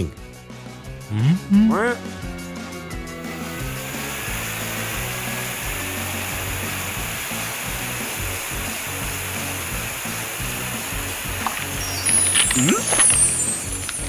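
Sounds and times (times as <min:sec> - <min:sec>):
background music: 0:00.0 - 0:14.0
cartoon water jet hiss: 0:03.2 - 0:14.0.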